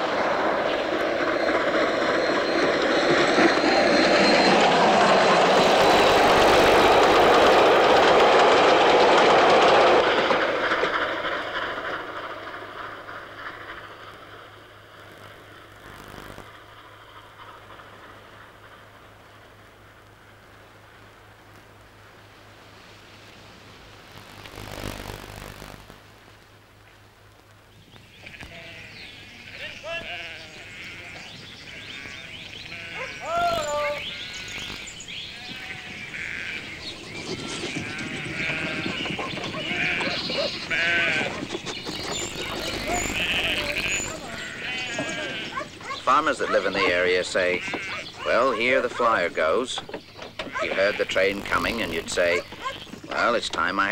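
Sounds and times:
steam train running by: 0:00.0 - 0:25.6, 0:28.2 - 0:53.9
sheep bleating: 0:28.2 - 0:34.7, 0:35.3 - 0:36.8, 0:37.6 - 0:41.4, 0:42.4 - 0:48.8, 0:50.4 - 0:53.3.

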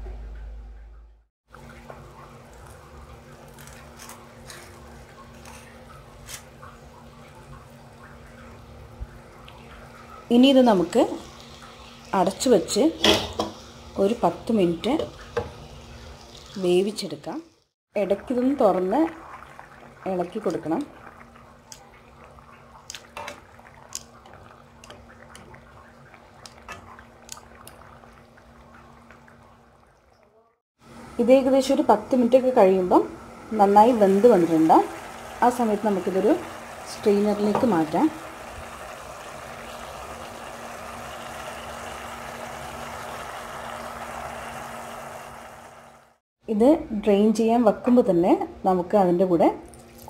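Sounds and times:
low steady hum: 0:00.0 - 0:13.2
water bubbling in a pan: 0:04.8 - 0:17.0, 0:17.6 - 0:30.4, 0:31.6 - 0:46.2.

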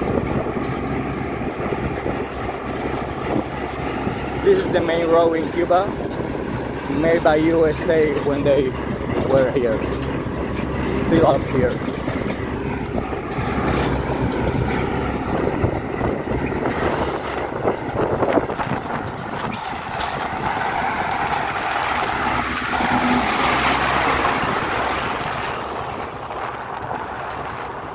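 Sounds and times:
knocks and rattles: 0:00.0 - 0:27.1
road rush: 0:00.0 - 0:27.9
tractor engine running: 0:00.0 - 0:27.9
wind: 0:00.0 - 0:27.9.

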